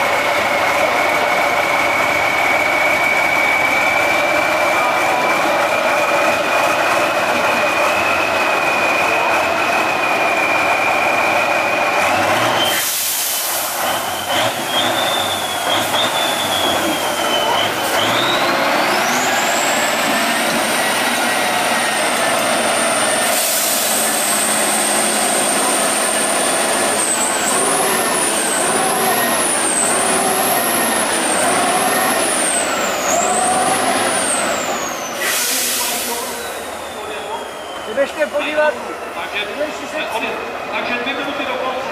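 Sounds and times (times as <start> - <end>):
truck engine pulling hard: 0.0 - 41.9
high whistle: 1.7 - 5.0, 7.9 - 20.0, 20.7 - 38.5
air hiss bursts: 12.7 - 13.8, 23.2 - 24.4, 35.2 - 36.5.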